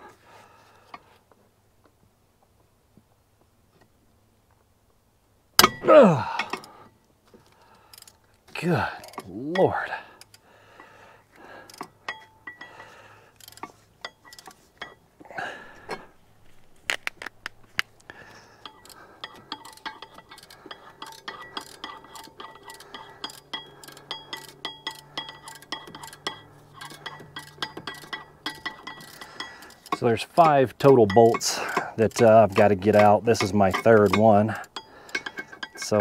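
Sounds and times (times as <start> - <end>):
hand ratchet clicking: 5.6 - 6.8, 7.9 - 8.2, 9.0 - 9.4, 11.4 - 15.0, 16.9 - 36.0
metallic clinks: 11.6 - 15.1, 18.5 - 36.0.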